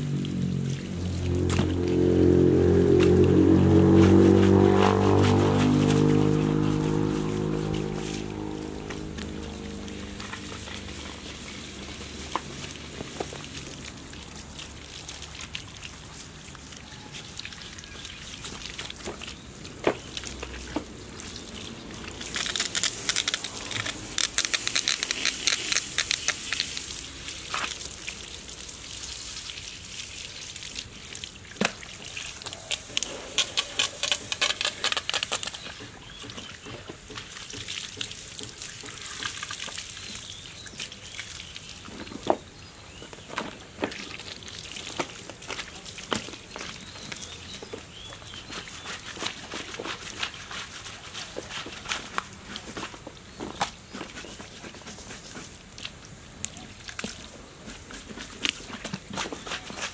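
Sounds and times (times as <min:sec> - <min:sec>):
hose water splashing into boots: 0:00.0 - 0:59.9.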